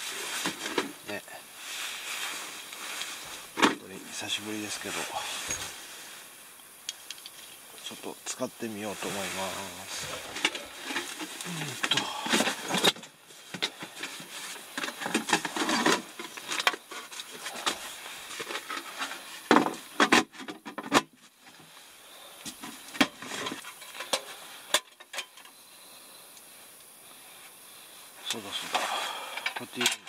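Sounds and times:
rubbing and rustling: 0:00.0 - 0:06.3, 0:07.9 - 0:21.8.

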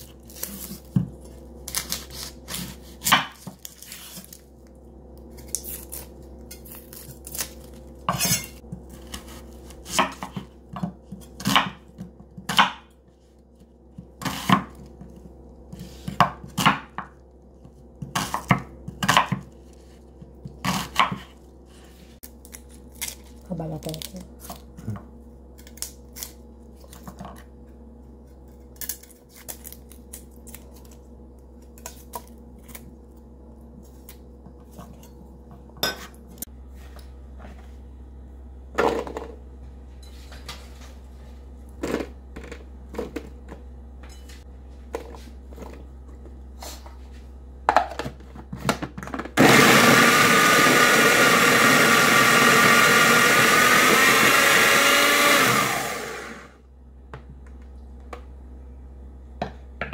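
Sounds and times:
food processor motor running: 0:49.3 - 0:56.6.

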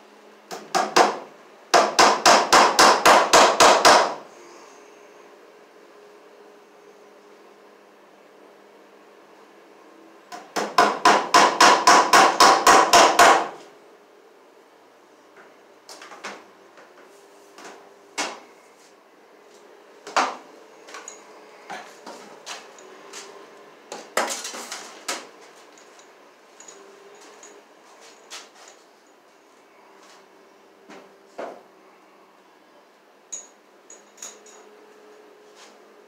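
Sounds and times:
hammer driving staple into wood: 0:01.8 - 0:04.2, 0:10.3 - 0:13.6.

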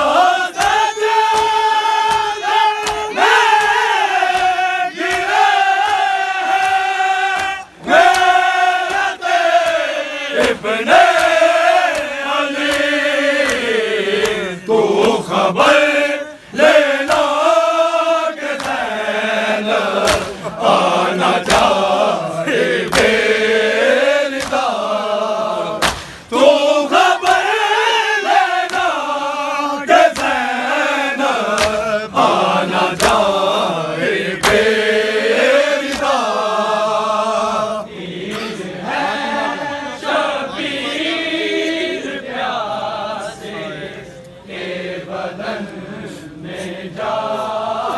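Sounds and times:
men chanting a lament: 0:00.0 - 0:47.9
sharp slaps: 0:00.5 - 0:15.3, 0:16.6 - 0:29.2, 0:29.9 - 0:37.1, 0:38.2 - 0:38.6.

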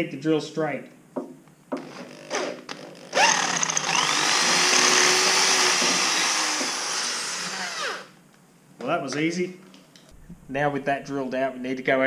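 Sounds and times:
electric drill boring: 0:03.0 - 0:08.2.

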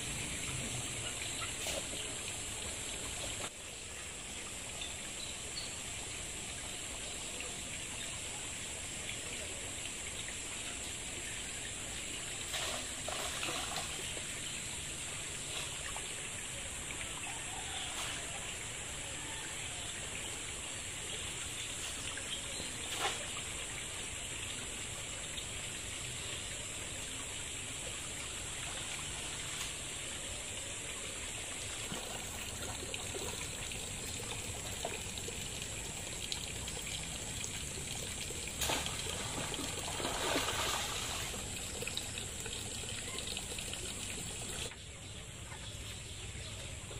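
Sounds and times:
trickling water: 0:00.0 - 0:46.9
net splashing in pond: 0:12.4 - 0:14.2, 0:31.7 - 0:33.4, 0:37.4 - 0:41.9.

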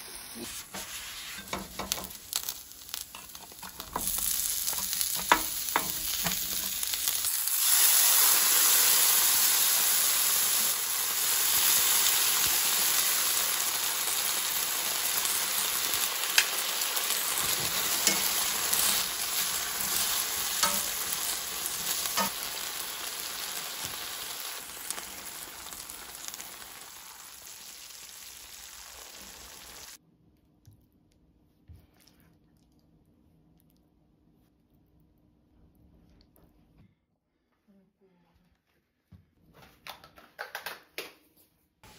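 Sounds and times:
food sizzling in a pan: 0:00.0 - 0:30.0.

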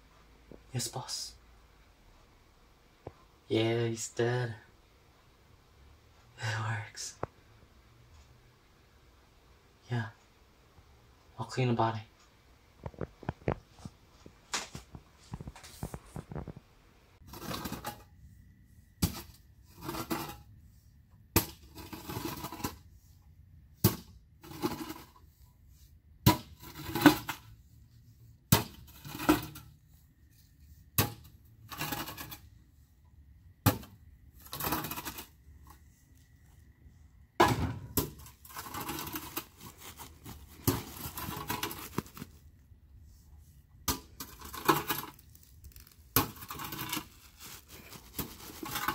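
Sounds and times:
rustling dirt: 0:34.0 - 0:43.4, 0:44.0 - 0:48.9.

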